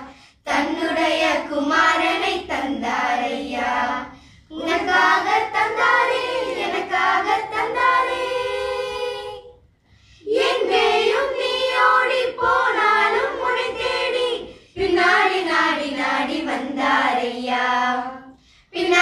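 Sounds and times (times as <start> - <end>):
girls singing in unison: 0.0 - 19.0.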